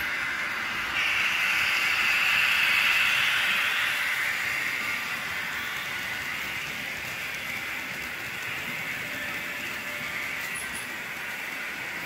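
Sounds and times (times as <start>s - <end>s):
model train rolling: 0.0s - 12.0s.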